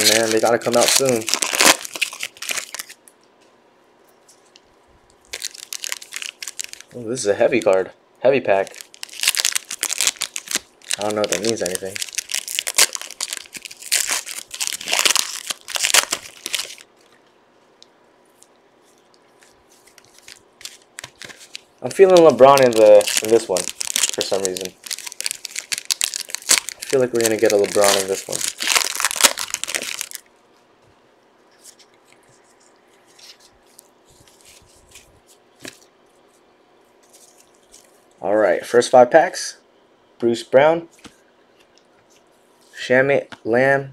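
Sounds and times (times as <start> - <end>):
trading cards rustling: 0.0 - 3.0, 5.3 - 7.8, 8.5 - 17.1, 19.4 - 30.2, 31.6 - 35.9
plastic wrapper crinkling: 0.0 - 3.2, 5.2 - 7.8, 8.5 - 17.2, 18.3 - 30.3, 31.5 - 36.2, 37.0 - 38.2.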